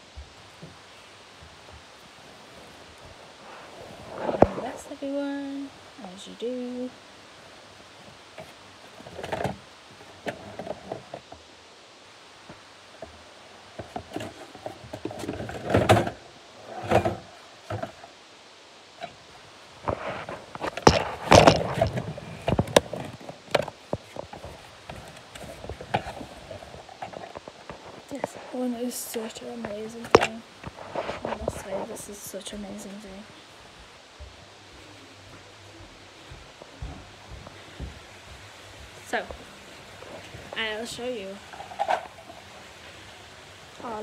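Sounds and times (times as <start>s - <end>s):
rustling: 0.0s - 44.0s.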